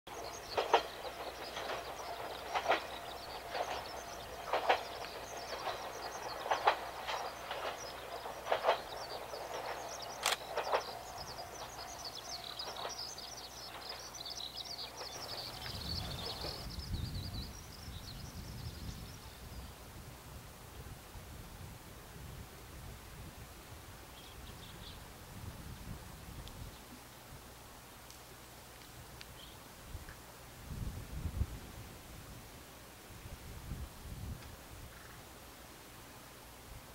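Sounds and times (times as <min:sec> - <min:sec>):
train wheels clacking on rail joints: 0:00.1 - 0:16.8
birds chirping: 0:00.1 - 0:19.8.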